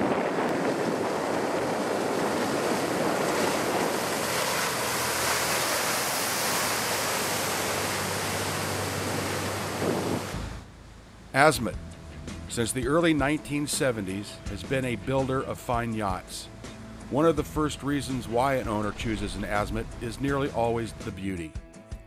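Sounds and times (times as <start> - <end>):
water rushing: 0.0 - 11.8, 12.6 - 21.2
low engine drone: 0.0 - 21.1
wind: 0.0 - 21.4.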